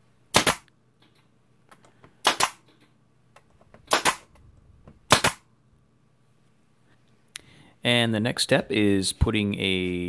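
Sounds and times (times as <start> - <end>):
nail gun firing: 0.3 - 0.7, 2.2 - 2.7, 3.8 - 4.3, 5.1 - 5.5.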